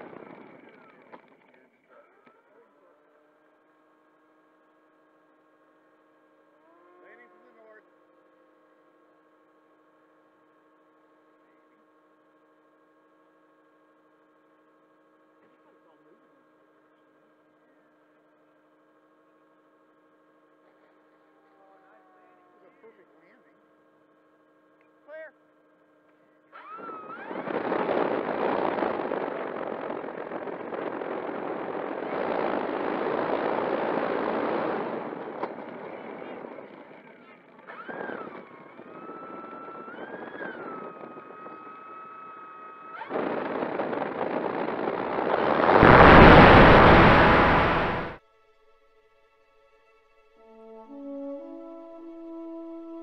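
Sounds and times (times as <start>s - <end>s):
model plane motor and propeller: 0.0s - 45.5s
prop wash rushing over microphone: 44.1s - 48.2s.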